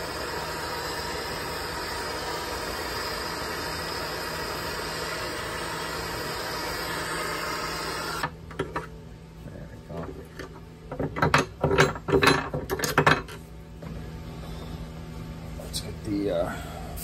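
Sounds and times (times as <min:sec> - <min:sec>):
gas torch hissing: 0:00.0 - 0:08.4, 0:15.6 - 0:17.0.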